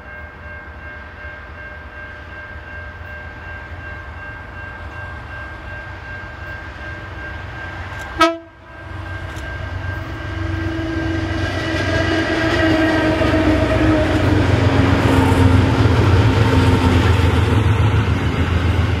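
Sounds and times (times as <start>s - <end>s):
diesel locomotives passing: 0.0s - 19.0s
locomotive horn tone: 8.0s - 15.8s.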